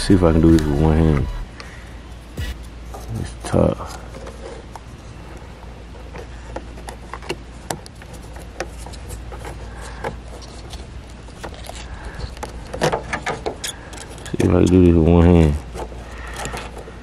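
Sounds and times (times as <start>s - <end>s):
low steady rumble: 0.0s - 8.2s.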